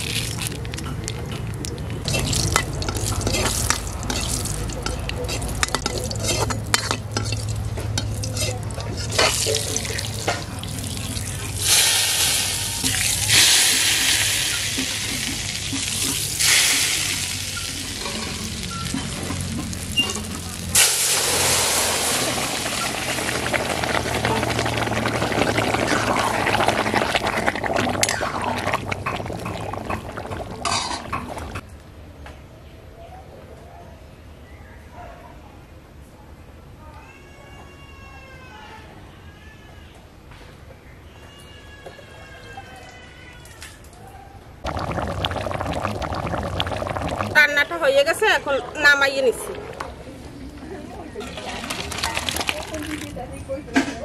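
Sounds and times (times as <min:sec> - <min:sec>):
ladle stirring: 0:00.0 - 0:21.2, 0:22.0 - 0:31.6, 0:44.7 - 0:50.0, 0:51.2 - 0:53.2
metal ladle scraping pan: 0:02.1 - 0:10.6
spices sizzling in hot oil: 0:02.1 - 0:30.0.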